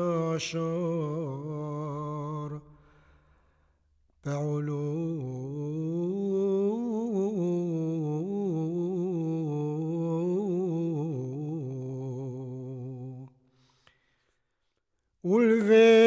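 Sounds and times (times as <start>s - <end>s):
low voice singing wordless chant: 0.0s - 2.7s, 4.2s - 13.4s, 15.2s - 16.0s.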